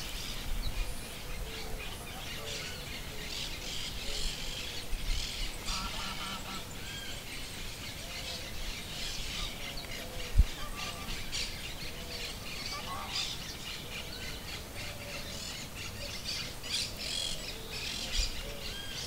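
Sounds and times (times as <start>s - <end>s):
birds chirping: 0.0s - 19.0s
birds honking: 5.2s - 7.3s, 10.6s - 13.4s.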